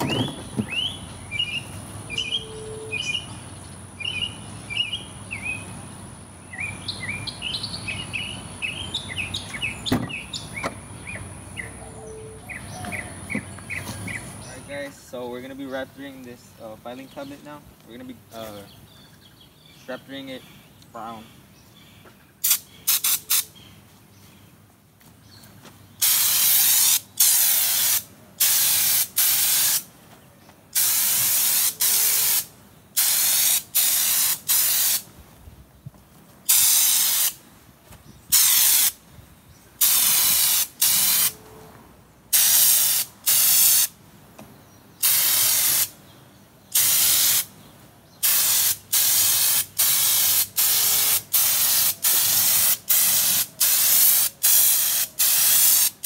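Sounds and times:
spray gun hissing bursts: 0:22.4 - 0:23.5, 0:26.0 - 0:29.9, 0:30.8 - 0:35.1, 0:36.5 - 0:37.4, 0:38.3 - 0:39.0, 0:39.8 - 0:41.4, 0:42.3 - 0:43.9, 0:45.0 - 0:45.9, 0:46.8 - 0:47.5, 0:48.2 - 0:56.0.

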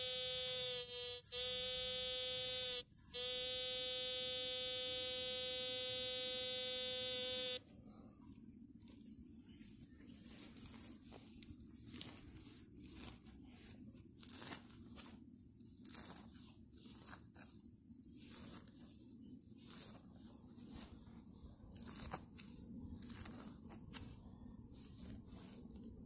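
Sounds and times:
hands tearing grass roots and soil: 0:10.3 - 0:26.0.

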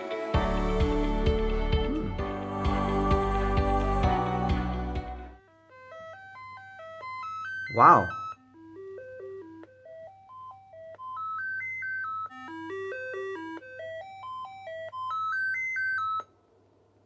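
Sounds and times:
short electronic beeps: 0:07.1 - 0:08.4.

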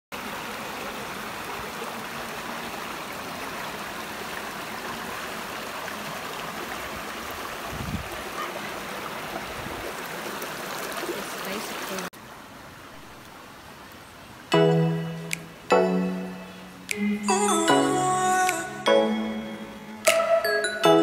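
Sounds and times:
stream running over stones: 0:00.1 - 0:14.5.

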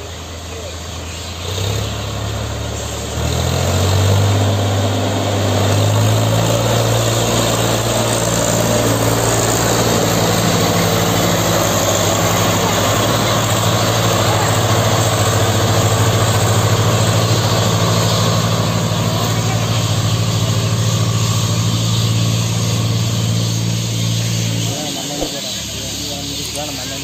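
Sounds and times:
diesel tractor engines working: 0:00.0 - 0:27.0.

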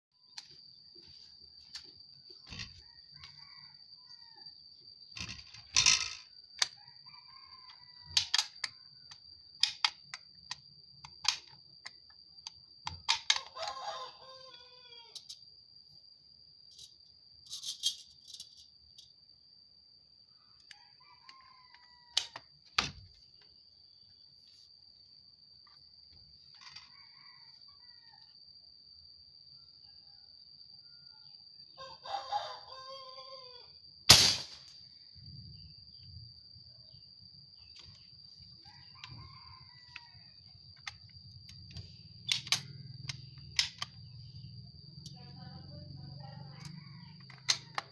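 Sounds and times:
rooster crowing: 0:02.4 - 0:04.7, 0:06.7 - 0:08.5, 0:13.4 - 0:15.2, 0:20.6 - 0:22.4, 0:26.6 - 0:28.5, 0:29.9 - 0:33.8, 0:38.4 - 0:40.9, 0:44.8 - 0:47.9.

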